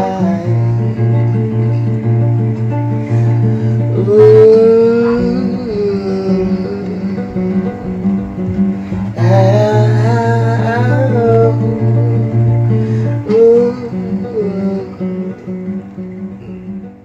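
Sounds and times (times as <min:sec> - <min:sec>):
acoustic guitar: 0:00.0 - 0:17.0
person singing sliding notes: 0:03.3 - 0:08.2.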